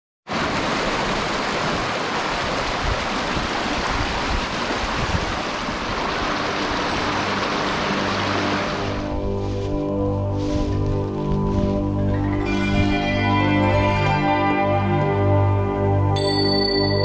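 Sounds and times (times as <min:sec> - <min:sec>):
creek rushing over rocks: 0:00.3 - 0:12.9.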